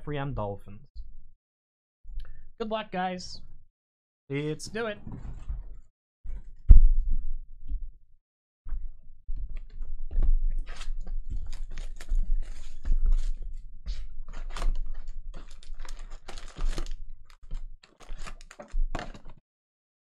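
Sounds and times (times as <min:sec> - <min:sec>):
plastic wrap crinkling: 0:10.7 - 0:13.4, 0:14.3 - 0:19.3.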